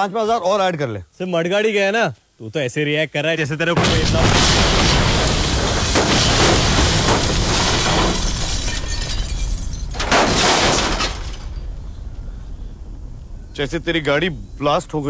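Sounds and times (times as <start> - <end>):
car explosion blast: 3.8 - 11.6
glass breaking: 3.8 - 11.7
debris falling: 3.8 - 11.9.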